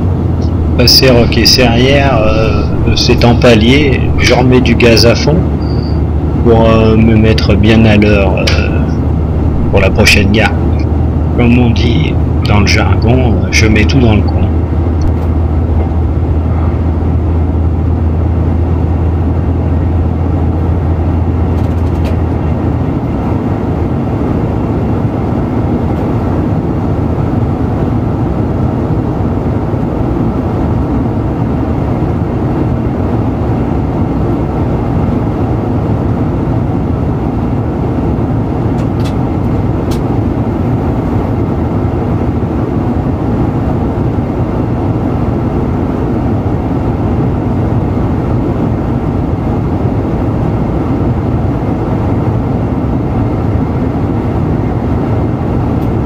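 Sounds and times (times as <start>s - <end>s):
strong low drone: 0.0s - 23.2s
diesel railcar engine: 0.0s - 56.0s.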